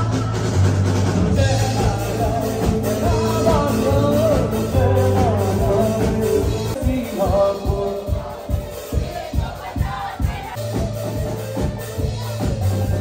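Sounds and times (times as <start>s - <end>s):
bass guitar: 0.0s - 13.0s
drums: 0.0s - 13.0s
man singing into a microphone: 1.3s - 9.6s.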